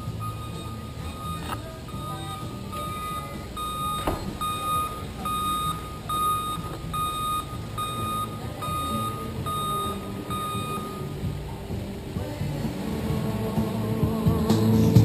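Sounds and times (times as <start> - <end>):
reversing alarm beeping: 0.0 - 11.3.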